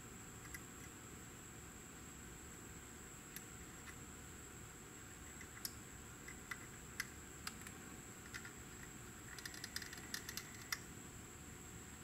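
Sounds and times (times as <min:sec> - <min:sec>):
faint hiss: 0:00.0 - 0:12.0
small plastic clicks and taps: 0:05.4 - 0:10.8.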